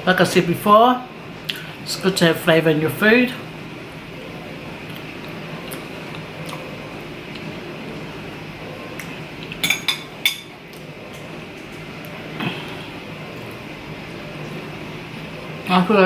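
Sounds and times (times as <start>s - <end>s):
quiet chewing: 4.8s - 7.7s.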